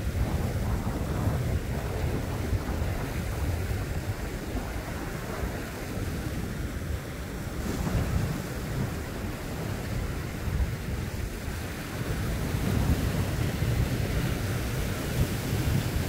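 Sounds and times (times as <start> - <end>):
waves washing onto rocky shore: 0.0 - 16.0
wind on microphone: 0.0 - 16.0.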